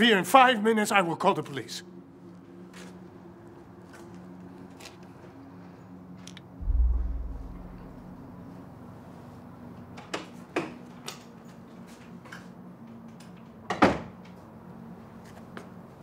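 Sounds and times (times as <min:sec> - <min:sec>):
steady low hum: 0:06.6 - 0:08.5.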